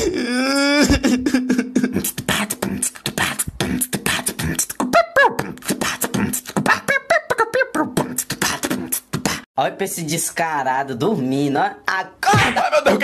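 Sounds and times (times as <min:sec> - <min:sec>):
pitched vocal glides: 0:00.0 - 0:09.5
beatboxing mouth percussion: 0:01.0 - 0:09.5.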